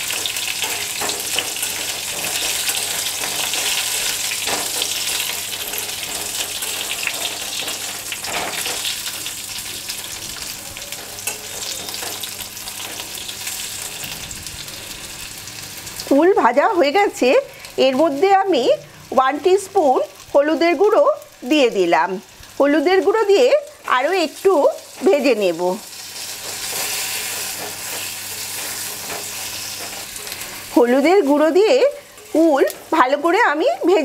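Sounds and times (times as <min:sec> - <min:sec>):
fruit sizzling in hot oil: 0:00.0 - 0:34.0
metal spatula scraping pan: 0:26.2 - 0:30.4.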